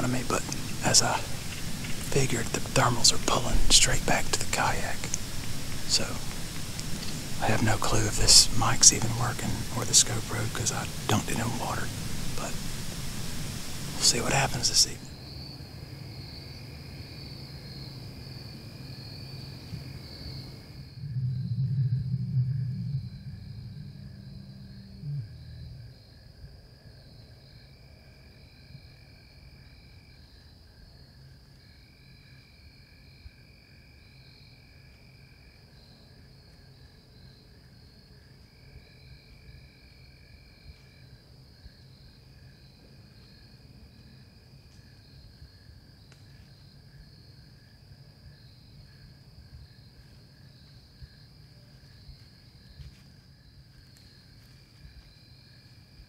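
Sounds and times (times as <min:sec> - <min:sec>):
high insect trill: 0:00.0 - 0:56.0
pulsing insect call: 0:00.0 - 0:56.0
low steady rumble: 0:20.9 - 0:26.0.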